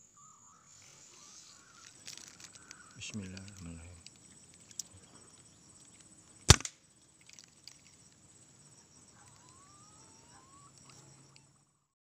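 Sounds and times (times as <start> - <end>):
faint insect buzz: 0.0 - 11.9
air rifle shot: 6.5 - 6.7.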